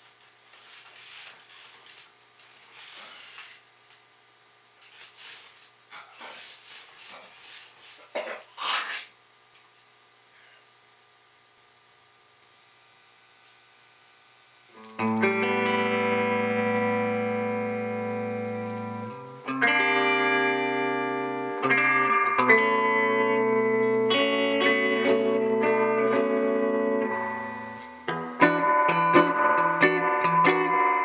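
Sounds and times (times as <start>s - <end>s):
faint amplifier hum: 0.0s - 31.0s
electric guitar chords ringing: 14.7s - 31.0s.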